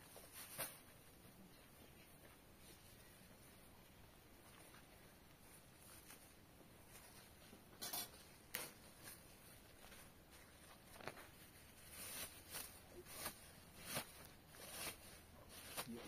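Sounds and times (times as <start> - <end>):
faint taps and rustles: 4.3 - 15.0.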